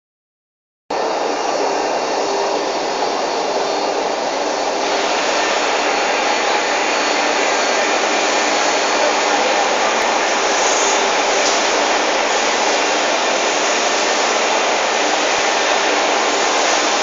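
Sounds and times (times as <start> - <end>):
machines and fans rushing: 0.9 - 17.0.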